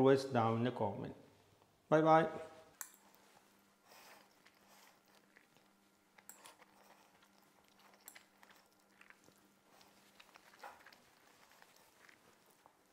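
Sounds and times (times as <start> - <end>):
faint steady hum: 0.0 - 12.9
soft chewing: 2.7 - 12.9.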